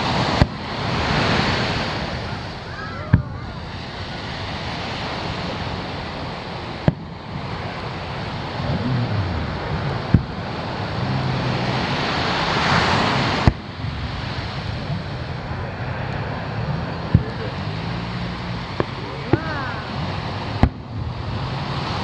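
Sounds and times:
surf washing on beach: 0.0 - 22.0
firework shells bursting: 9.4 - 10.9, 13.2 - 13.8, 16.6 - 21.0.

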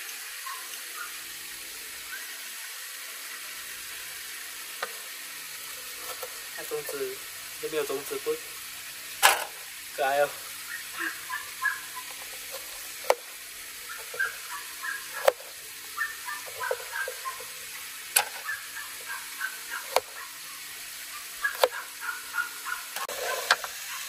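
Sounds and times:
faint high chirps: 10.6 - 12.2, 13.8 - 15.2.

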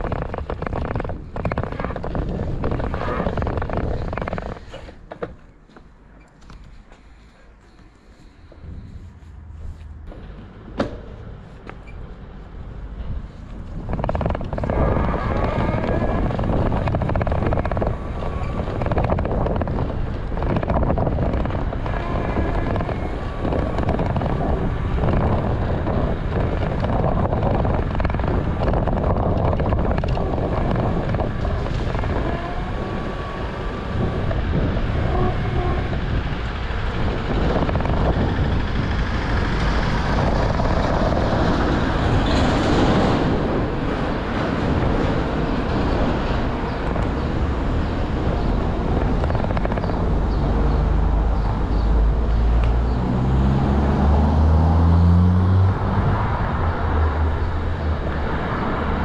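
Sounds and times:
wind buffeting camera: 0.0 - 5.4, 8.4 - 59.0
tyres rumbling on road: 0.0 - 7.4, 8.1 - 59.0.

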